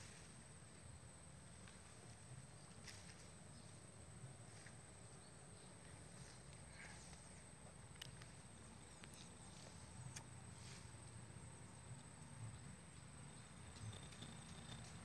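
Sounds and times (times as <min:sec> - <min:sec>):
soft scattered clicks: 0:06.5 - 0:10.4.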